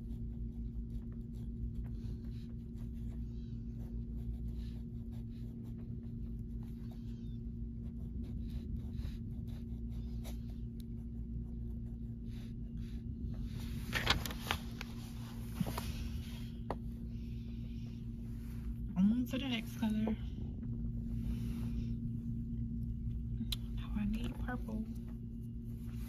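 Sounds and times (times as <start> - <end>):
crayon scratching on paper: 0.0 - 13.8
steady low hum: 0.0 - 26.0.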